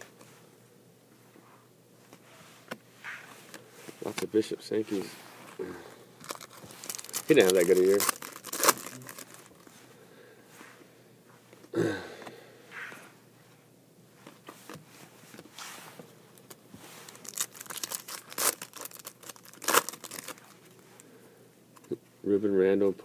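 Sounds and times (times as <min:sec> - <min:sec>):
cards being handled: 0:06.2 - 0:09.7
foil wrappers crinkling and tearing: 0:06.2 - 0:09.7, 0:16.4 - 0:20.8.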